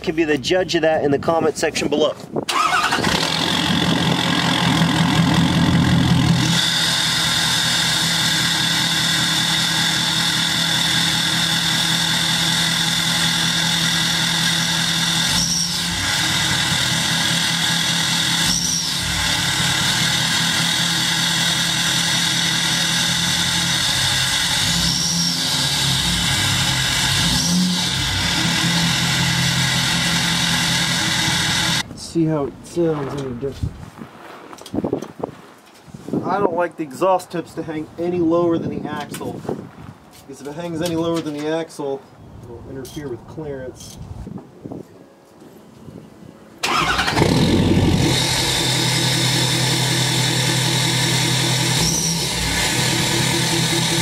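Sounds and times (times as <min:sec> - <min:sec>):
diesel engine idling: 0:02.5 - 0:31.8, 0:46.6 - 0:54.0.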